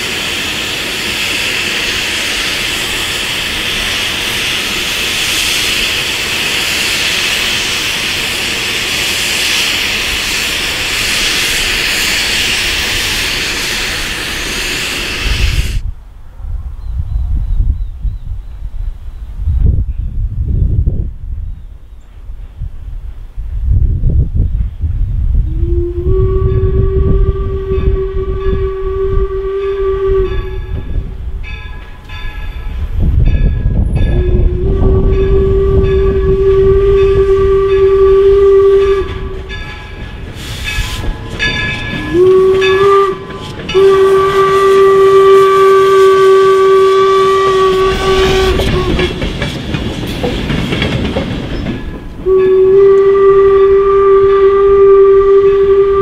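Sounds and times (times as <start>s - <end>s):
steam whistle blasts: 0.0s - 15.8s, 25.4s - 31.0s, 34.1s - 49.3s, 52.2s - 56.0s
train rumbling past: 0.0s - 56.0s.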